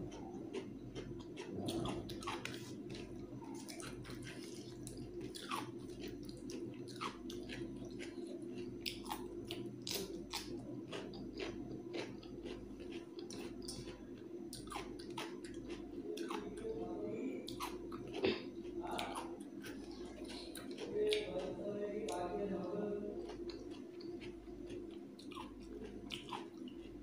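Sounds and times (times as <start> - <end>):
person chewing wetly: 0.0 - 27.0
steady low hum: 0.0 - 27.0
crunchy cucumber bites: 0.1 - 16.7.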